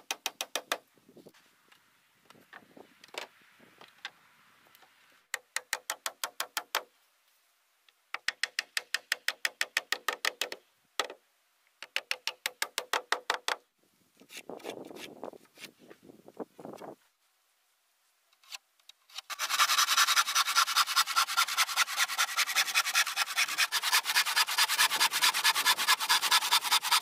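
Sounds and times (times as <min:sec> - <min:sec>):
wood scraping: 0:18.4 - 0:27.0.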